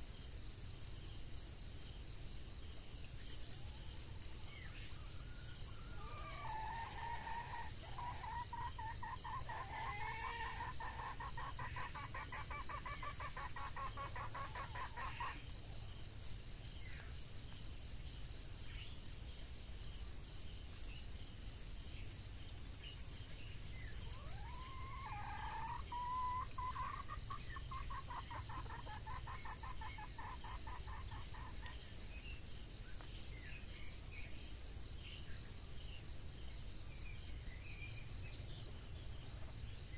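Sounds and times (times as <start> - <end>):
insects droning: 0.0 - 39.9
junglefowl clucking calls: 5.9 - 15.5, 24.0 - 31.8.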